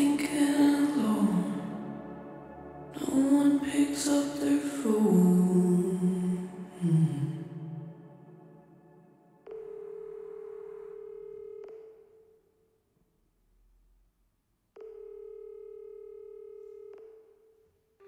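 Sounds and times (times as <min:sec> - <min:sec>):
reverb-drenched song: 0:00.0 - 0:09.5.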